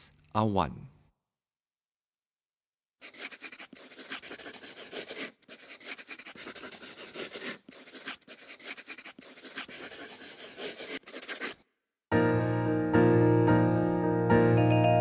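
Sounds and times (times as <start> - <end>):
pen scratching on paper: 3.0 - 11.6.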